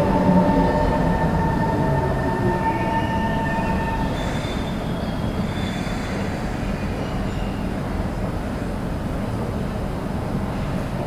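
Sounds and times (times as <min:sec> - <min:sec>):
high whine: 0:00.0 - 0:04.8
train rumbling: 0:00.0 - 0:11.0.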